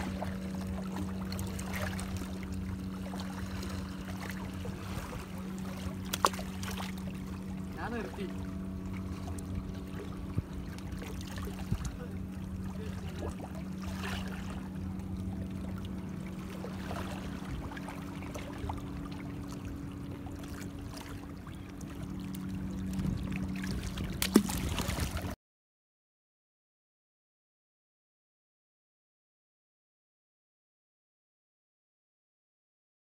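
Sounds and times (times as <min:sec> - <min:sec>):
light water noise: 0:00.0 - 0:25.4
low engine hum: 0:00.0 - 0:25.4.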